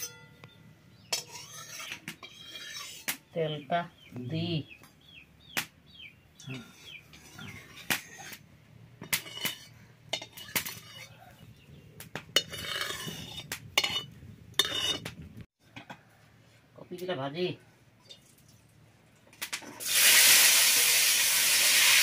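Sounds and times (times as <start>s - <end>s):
spatula clinking on metal pan: 1.1s - 3.1s, 9.2s - 11.1s, 12.4s - 15.0s.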